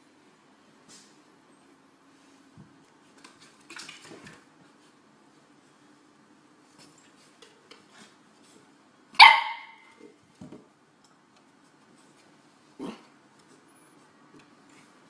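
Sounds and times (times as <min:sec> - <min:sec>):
puppy barking: 0:09.2 - 0:09.9.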